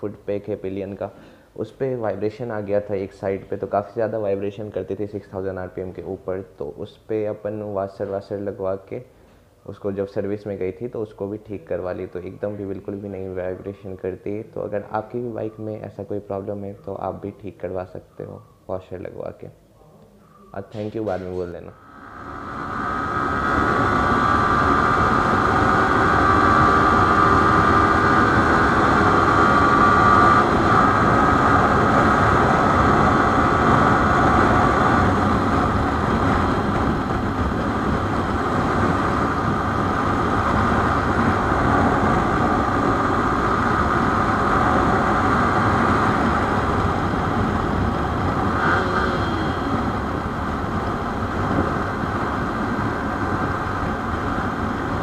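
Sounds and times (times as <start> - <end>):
wind rush: 20.7 - 55.0
motorcycle engine cruising: 22.0 - 55.0.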